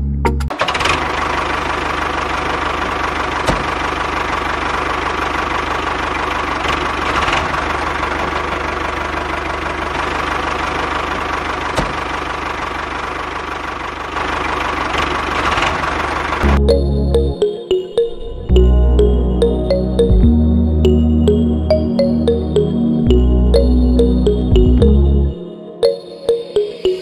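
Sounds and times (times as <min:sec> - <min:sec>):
tractor engine idling: 0:00.5 - 0:17.6.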